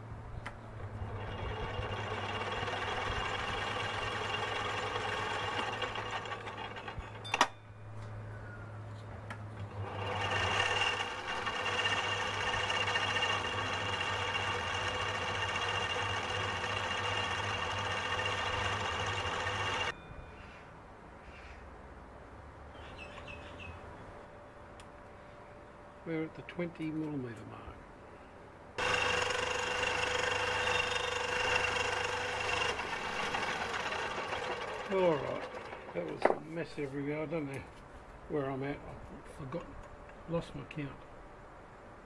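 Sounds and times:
lathe motor whine: 0.9 - 7.2, 9.7 - 19.9, 28.8 - 36.4
lathe cutting metal: 9.8 - 19.9, 28.8 - 36.4.

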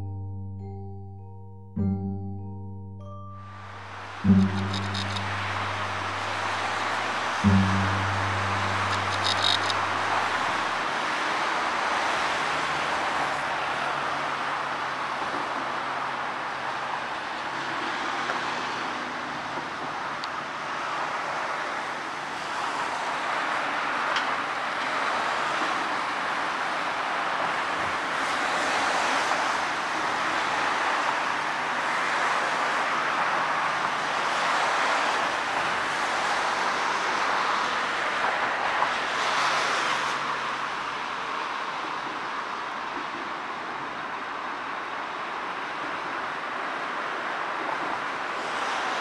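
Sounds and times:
road traffic: 0.0 - 49.0.

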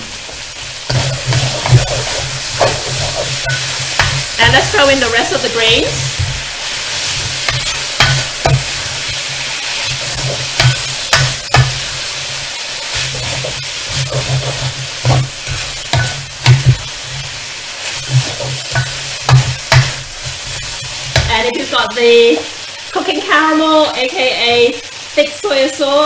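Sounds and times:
spatula scraping and knocking wok: 0.0 - 22.7
noodles sizzling in a wok: 0.0 - 26.0.

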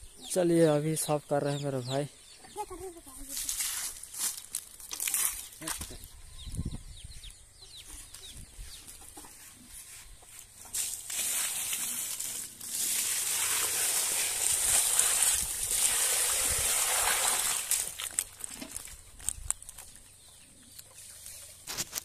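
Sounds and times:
water pouring and splashing: 10.7 - 19.0.

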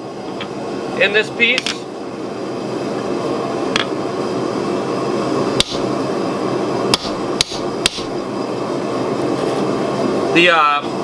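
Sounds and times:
hammer striking punch on anvil: 5.6 - 5.8, 6.9 - 8.2.

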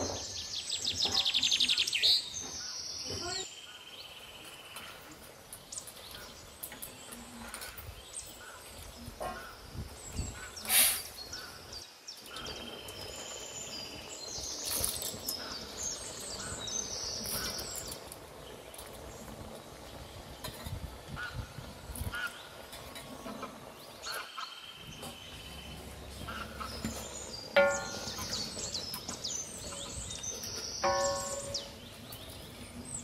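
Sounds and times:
birds chirping: 0.0 - 33.0.

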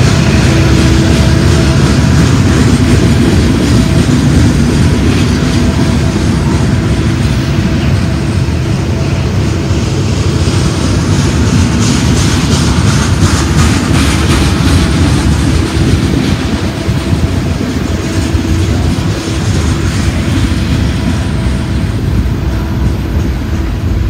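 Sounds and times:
train wheels rolling over rails: 0.0 - 24.0.

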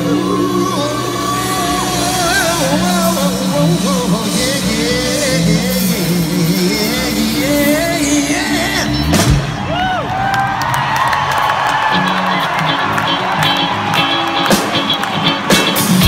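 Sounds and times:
live rock band playing: 0.0 - 16.0
crowd cheering and whooping: 9.0 - 16.0.

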